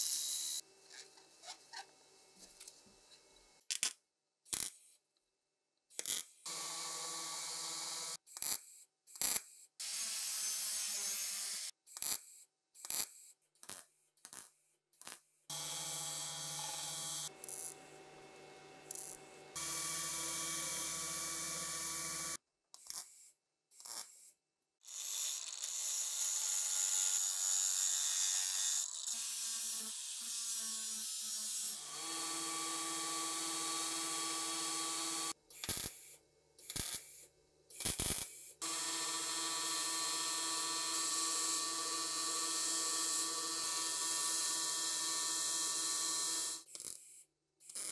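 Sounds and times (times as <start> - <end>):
belt grinder motor hum: 15.5 - 22.4, 31.7 - 35.4, 38.6 - 46.6.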